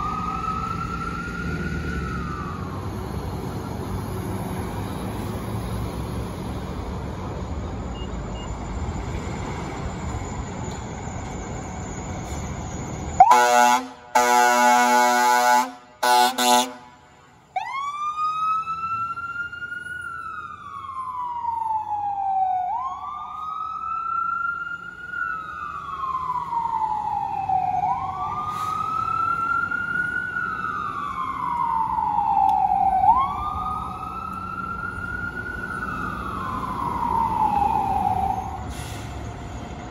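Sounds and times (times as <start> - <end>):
siren wailing: 0.0 - 3.4, 11.5 - 16.8, 17.6 - 38.7
traffic noise: 0.0 - 39.9
fire engine horn blasts: 13.2 - 17.6.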